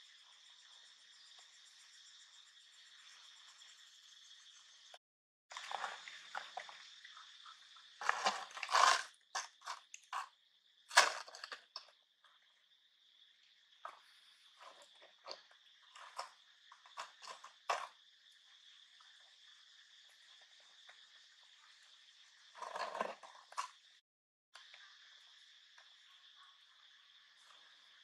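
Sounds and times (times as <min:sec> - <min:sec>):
high insect drone: 0:00.0 - 0:05.0
plastic crinkling and crunching: 0:08.0 - 0:09.8.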